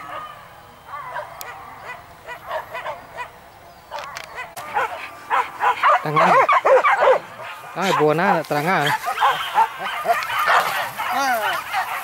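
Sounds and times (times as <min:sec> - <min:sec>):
dogs barking and yelping: 0:00.0 - 0:12.0.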